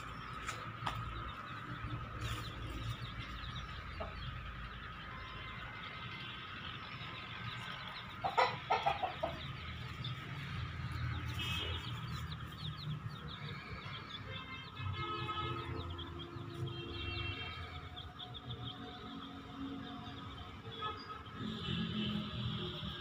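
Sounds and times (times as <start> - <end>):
chickens clucking and calling: 7.0 - 10.6.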